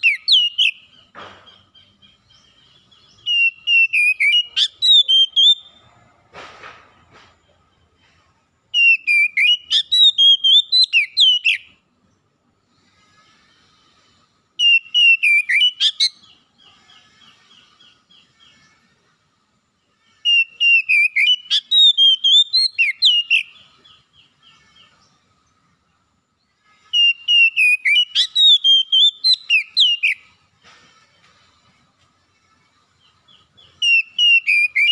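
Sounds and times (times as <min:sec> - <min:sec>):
bird whistled song: 0:00.0 - 0:05.8, 0:08.7 - 0:11.7, 0:14.6 - 0:18.6, 0:20.2 - 0:25.1, 0:26.9 - 0:30.4, 0:33.0 - 0:34.9.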